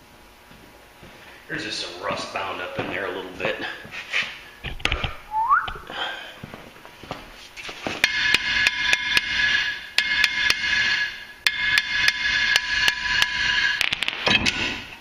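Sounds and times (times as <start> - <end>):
hammer blows on metal rotor: 8.0 - 15.0.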